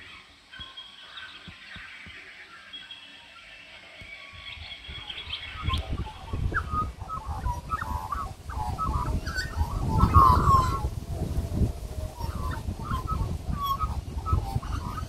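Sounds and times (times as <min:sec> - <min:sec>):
birds chirping and squawking: 0:00.0 - 0:15.0
low rumble on microphone: 0:04.4 - 0:15.0.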